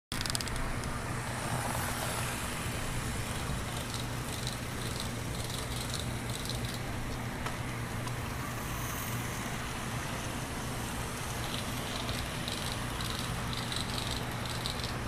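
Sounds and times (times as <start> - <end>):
wheel-on-rail rumble: 0.1 - 15.0
wheels ticking over rails: 3.0 - 8.2, 11.1 - 15.0
electric motor hum: 7.8 - 15.0.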